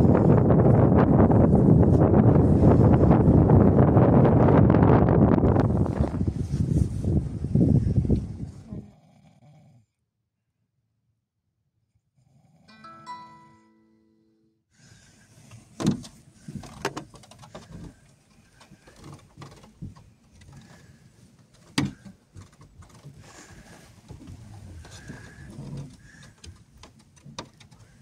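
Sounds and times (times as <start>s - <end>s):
handling and rustling in a car: 5.4s - 7.6s, 14.8s - 28.0s
small knocks: 24.1s - 28.0s.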